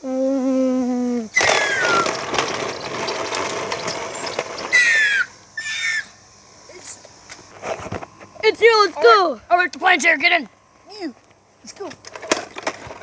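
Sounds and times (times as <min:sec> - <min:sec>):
plastic toy plane scraping on concrete: 0:01.4 - 0:05.0.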